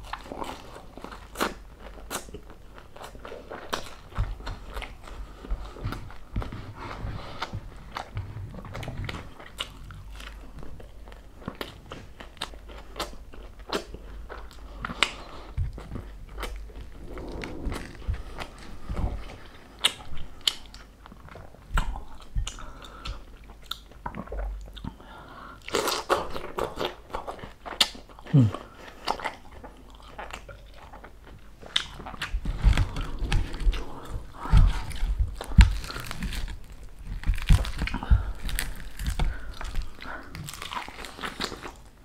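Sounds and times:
chewing: 0.0 - 42.0
crunching crispy pork skin: 31.7 - 42.0.

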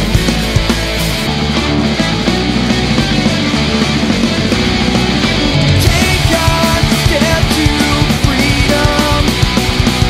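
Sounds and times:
loud rock music: 0.0 - 10.0.

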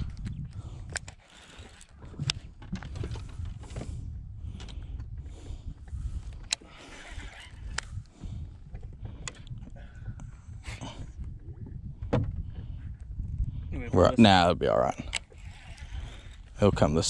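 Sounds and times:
fishing reel clicking and whirring: 0.0 - 3.8, 4.6 - 8.2, 14.7 - 17.0
wind buffeting microphone: 0.0 - 17.0.

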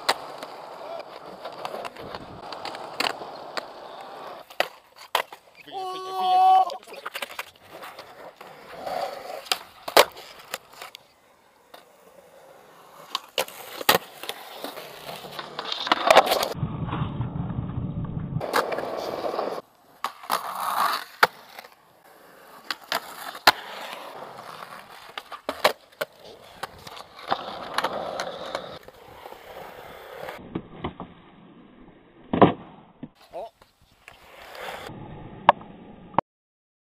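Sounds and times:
skateboard clacks: 0.0 - 5.5, 6.8 - 11.0, 22.5 - 29.0
skateboards rolling: 0.0 - 36.2.

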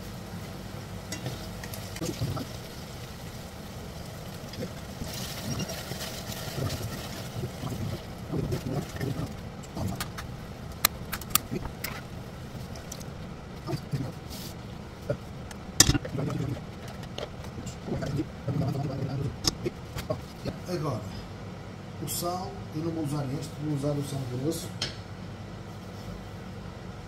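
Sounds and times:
low hum: 0.0 - 23.4
containers clicking and knocking: 15.5 - 18.2.

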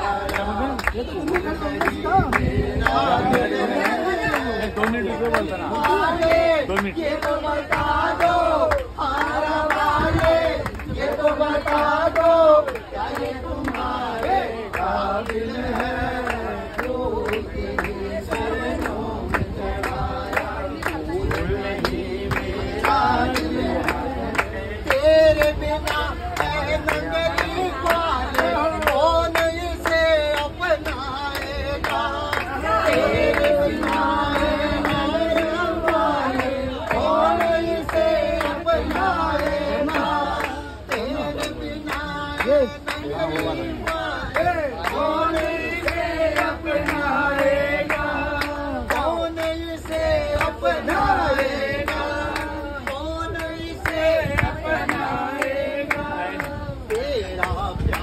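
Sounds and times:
group singing devotional song: 0.0 - 58.0
hand clapping in time: 0.0 - 58.0
man singing lead: 19.4 - 58.0.

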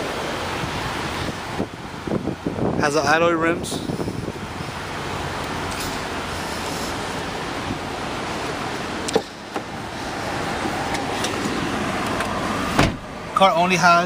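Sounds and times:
wind rushing on microphone: 0.4 - 5.0.

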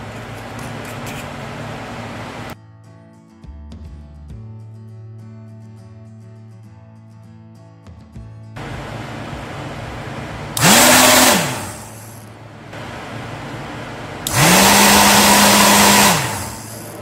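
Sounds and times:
hair dryer motor whine: 0.4 - 2.6, 8.6 - 17.0.

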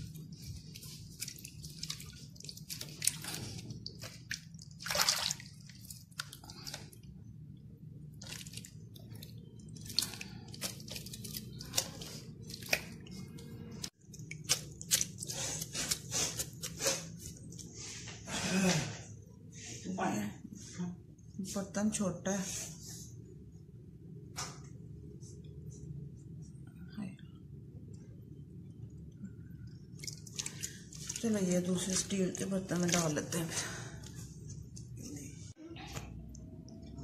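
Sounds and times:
hand squelching in liquid: 0.0 - 7.1, 8.1 - 17.1, 29.8 - 33.5.

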